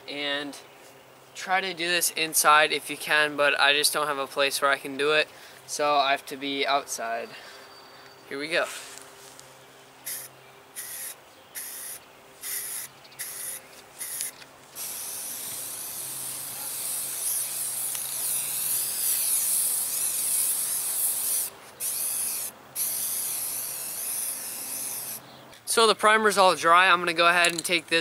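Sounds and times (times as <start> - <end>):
spray can hissing: 10.0 - 25.2.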